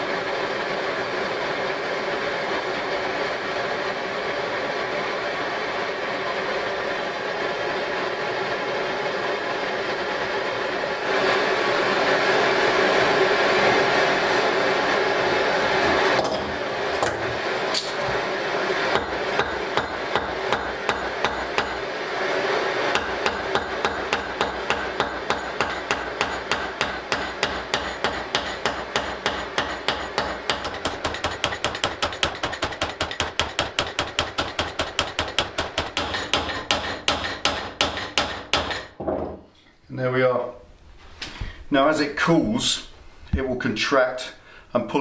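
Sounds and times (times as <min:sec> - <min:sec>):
gas blowtorch roaring: 0:00.0 - 0:38.5.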